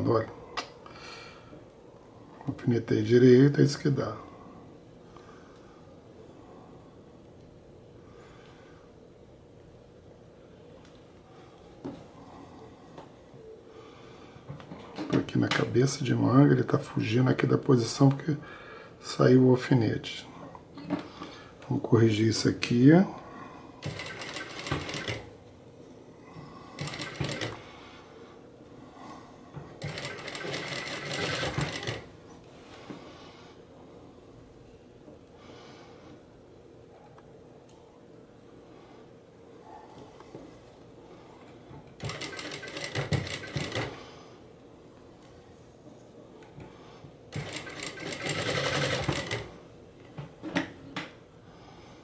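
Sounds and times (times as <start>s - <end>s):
sewing machine stitching: 23.8s - 25.3s, 26.8s - 27.6s, 29.8s - 32.1s, 42.0s - 44.0s, 47.3s - 49.5s.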